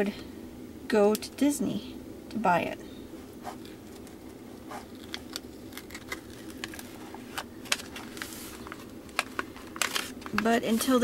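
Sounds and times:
steady background hum: 0.0s - 11.0s
plastic film crackling and rustling: 3.8s - 11.0s.

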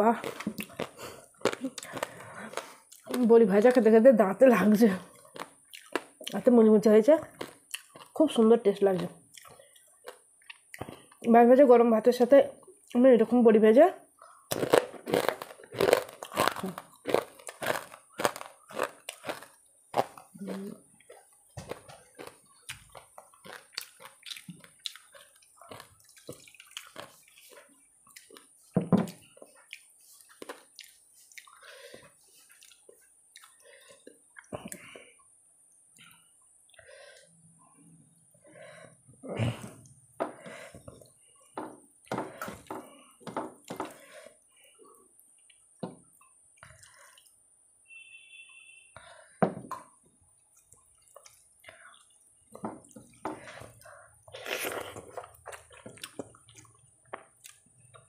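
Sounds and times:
chewing: 0.2s - 3.3s, 5.1s - 6.4s, 7.3s - 8.2s, 9.0s - 11.3s, 14.2s - 37.3s, 43.8s - 47.4s, 50.4s - 58.0s
wet clicks and smacks of hand mixing food: 7.2s - 8.4s, 9.0s - 11.4s, 21.0s - 31.7s, 49.7s - 54.0s, 54.8s - 58.0s.

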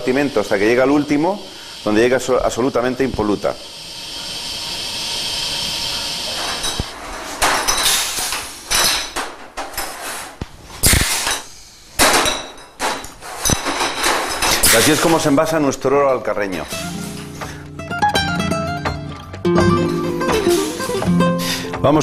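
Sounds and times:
machine hiss: 0.0s - 9.2s, 10.8s - 12.2s, 13.4s - 15.4s, 20.3s - 21.8s.

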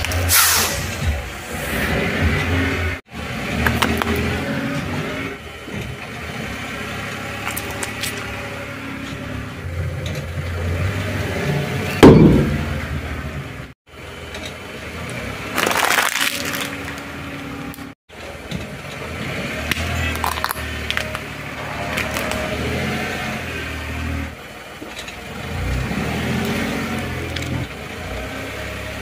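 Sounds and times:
crackling crunch: 15.5s - 17.1s
tyre crushing plastic objects: 15.5s - 17.1s.

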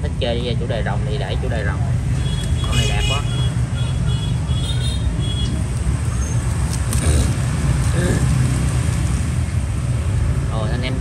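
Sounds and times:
road traffic rumble: 0.0s - 11.0s
faint voice: 7.0s - 8.4s.

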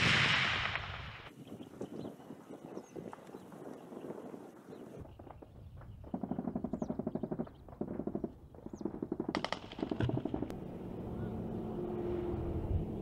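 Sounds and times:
bird chirps: 1.3s - 9.0s
distant automatic gunfire: 6.1s - 10.5s.

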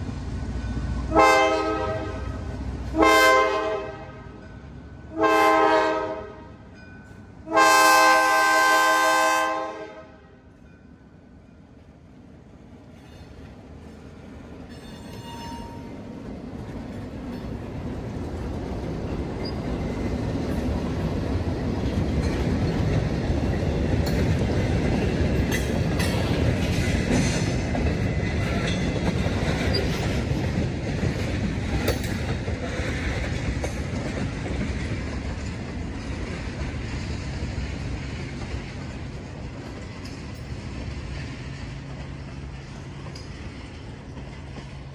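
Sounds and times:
train wheels rumbling on track: 0.0s - 44.9s
wheels clanking over rail joints: 12.8s - 44.9s.

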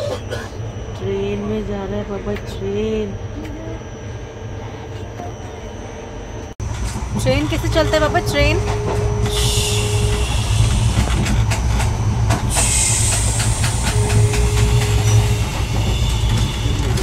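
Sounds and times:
train rumbling: 0.0s - 17.0s
rushing air hiss: 12.5s - 14.0s.

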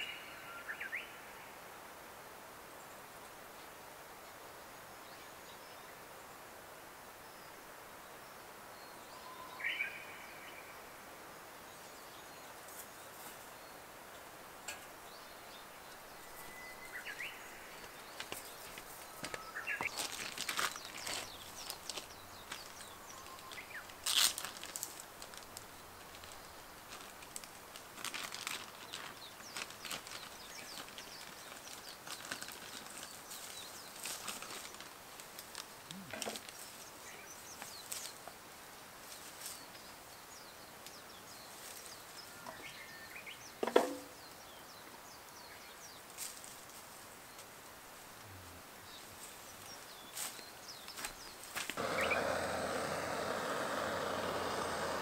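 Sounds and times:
rustling and handling noises: 17.7s - 37.0s
short bird chirps: 52.0s - 52.2s.

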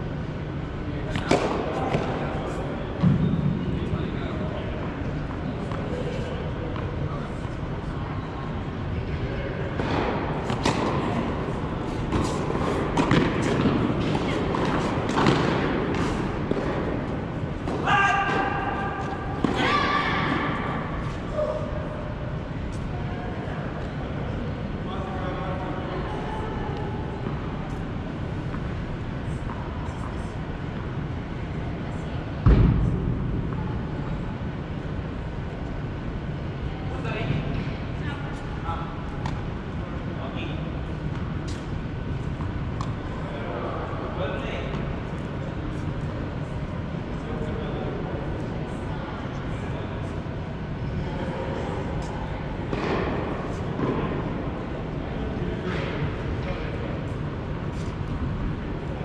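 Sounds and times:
low rumble of indoor hall: 0.0s - 59.0s
steady hum: 0.0s - 59.0s
loud low thump: 32.4s - 33.6s.

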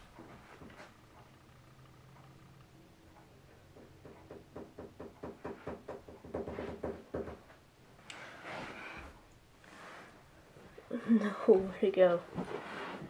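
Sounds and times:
plastic knocks and clicks: 3.7s - 7.5s.

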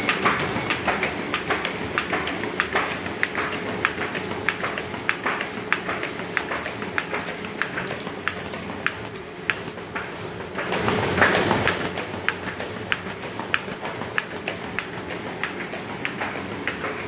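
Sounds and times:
machine sharp clicks: 0.0s - 17.0s.

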